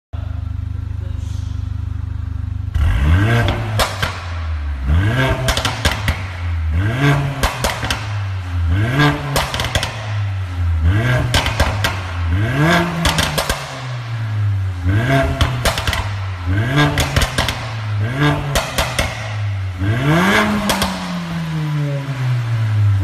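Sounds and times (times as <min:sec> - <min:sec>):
car engine revving: 0:00.2 - 0:23.0
exhaust crackles and pops: 0:03.3 - 0:21.6.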